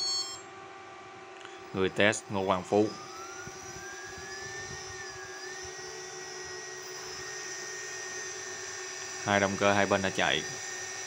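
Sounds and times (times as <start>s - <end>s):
thrusters high electric whine: 0.0s - 0.5s, 1.7s - 11.0s
low motor hum: 1.6s - 11.0s.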